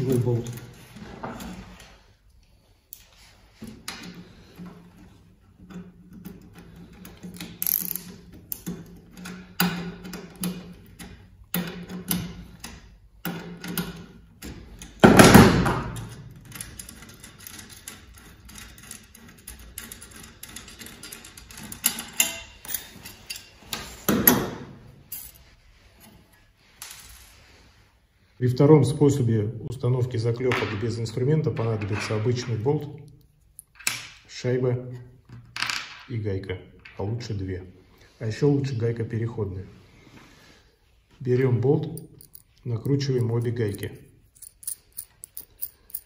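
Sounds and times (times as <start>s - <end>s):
small metal clicks and rattles: 5.6s - 15.0s, 16.0s - 23.5s, 42.0s - 46.0s.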